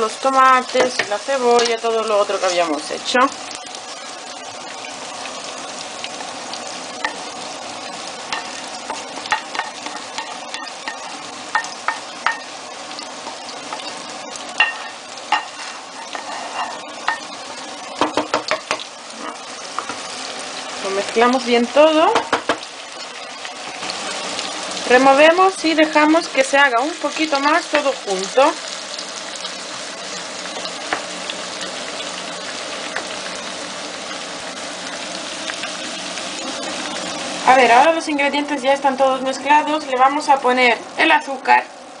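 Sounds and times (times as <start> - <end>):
sauce sizzling in a frying pan: 0.0 - 42.0
spatula knocking and scraping pan: 0.8 - 1.7, 8.3 - 12.5, 14.6 - 17.3, 17.9 - 18.9, 22.0 - 22.7.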